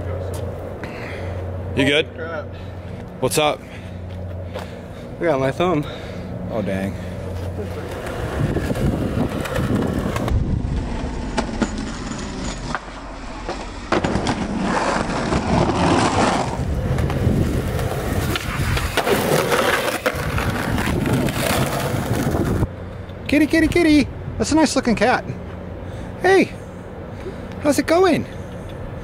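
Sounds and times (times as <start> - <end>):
skateboard wheels rolling on concrete: 2.8 - 24.0
skateboard clacking on ground: 11.2 - 22.6.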